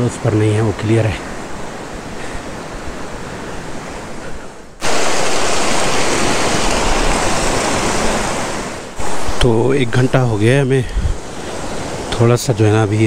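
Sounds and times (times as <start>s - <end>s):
mountain stream rushing over rocks: 4.8s - 13.0s.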